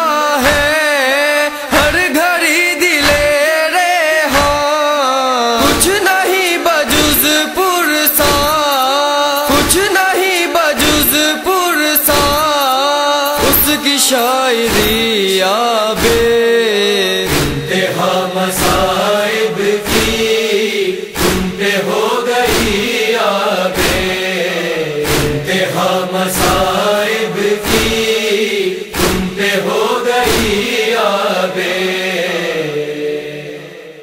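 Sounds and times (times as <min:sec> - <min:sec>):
chorus of voices chanting: 0:00.0 - 0:34.0
chest-beating strokes: 0:10.8 - 0:15.2, 0:17.2 - 0:22.8, 0:27.6 - 0:30.6.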